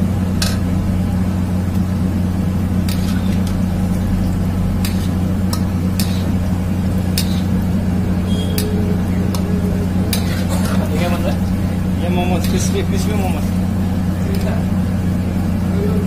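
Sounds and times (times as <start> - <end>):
food sizzling in hot oil: 0.0 - 12.8
loud low hum: 0.0 - 16.0
metal spatula scraping wok: 2.8 - 3.6, 4.8 - 6.4, 7.1 - 7.6, 8.3 - 11.3.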